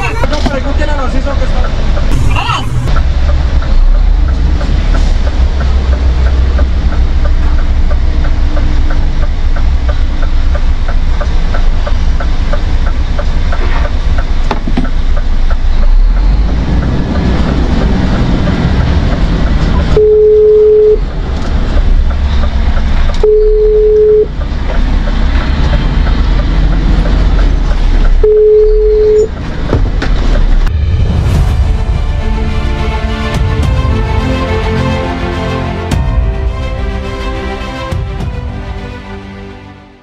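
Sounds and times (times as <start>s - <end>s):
truck diesel engine rumble: 0.0s - 39.6s
long single-tone beeps: 19.9s - 21.0s, 23.2s - 24.3s, 28.2s - 29.3s.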